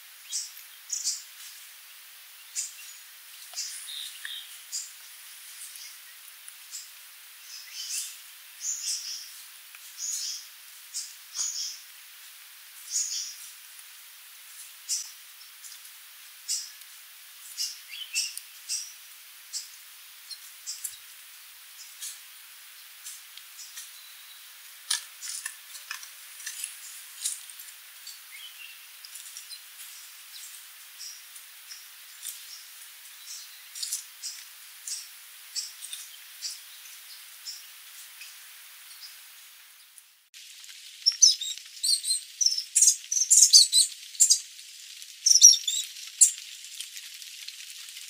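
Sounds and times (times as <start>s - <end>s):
faint hiss: 0.0s - 48.0s
bird calling in high chips: 41.0s - 44.5s, 45.2s - 46.4s.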